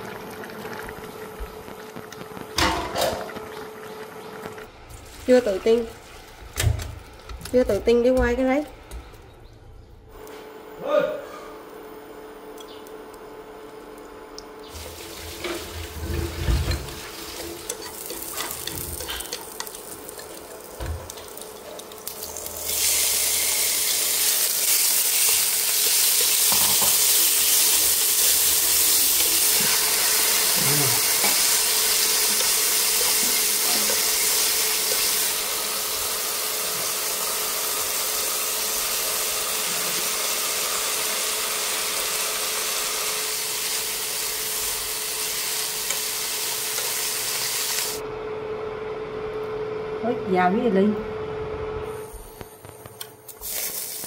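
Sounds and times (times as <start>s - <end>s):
meat sizzling in frying pan: 14.7s - 48.0s, 53.4s - 54.0s.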